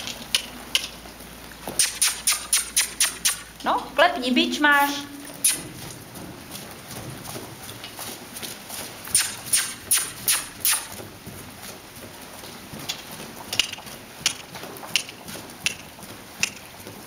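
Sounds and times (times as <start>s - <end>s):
sharp clicks: 1.8s - 3.6s, 9.1s - 11.0s, 16.4s - 16.7s
hoofbeats on sand: 4.8s - 17.0s.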